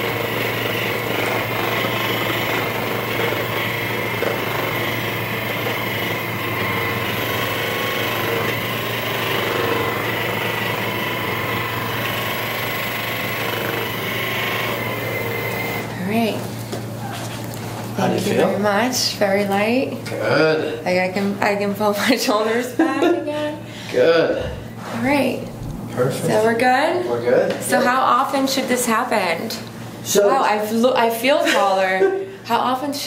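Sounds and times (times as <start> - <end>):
massager motor humming: 0.0 - 21.0, 23.9 - 26.8.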